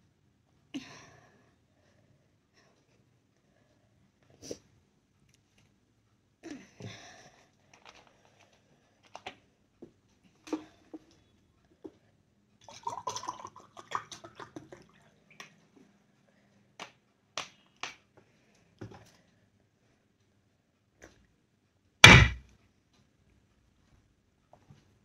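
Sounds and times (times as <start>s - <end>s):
water pouring into glass: 12.6s - 14.4s.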